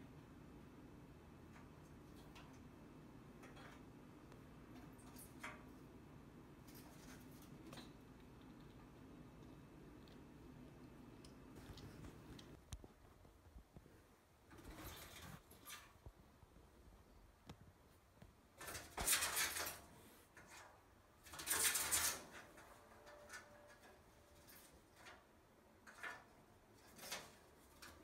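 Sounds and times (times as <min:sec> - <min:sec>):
animal scratching in metal pipe: 0:14.5 - 0:15.9, 0:18.6 - 0:25.1
animal scratching inside metal pipe: 0:20.4 - 0:23.3.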